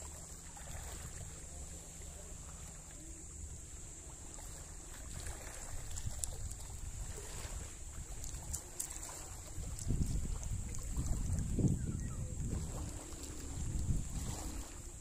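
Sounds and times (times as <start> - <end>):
faint high hiss: 0.0 - 15.0
wind buffeting microphone: 5.0 - 15.0.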